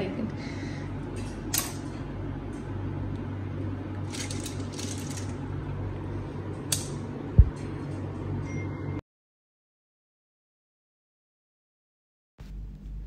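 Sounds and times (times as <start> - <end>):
steady low hum: 0.0 - 9.0, 12.4 - 13.0.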